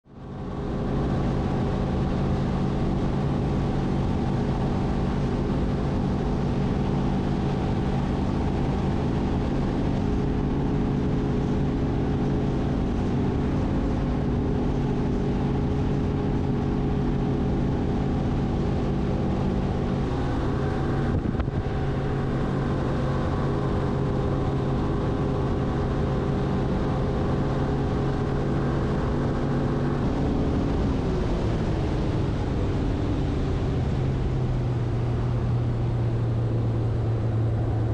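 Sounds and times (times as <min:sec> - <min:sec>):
outboard motor running: 0:00.1 - 0:37.9.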